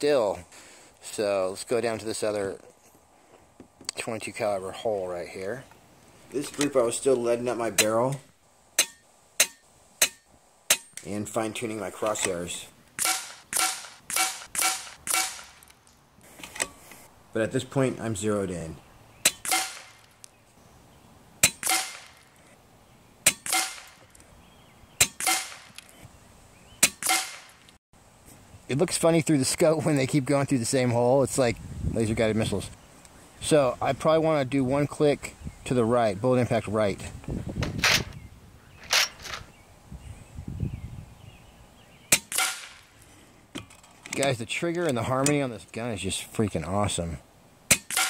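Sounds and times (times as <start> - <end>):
air rifle shots cracking: 13.0 - 15.7, 19.2 - 20.1, 21.4 - 22.3, 23.2 - 24.0, 25.0 - 25.8, 26.8 - 27.6, 42.1 - 42.9, 47.7 - 48.0.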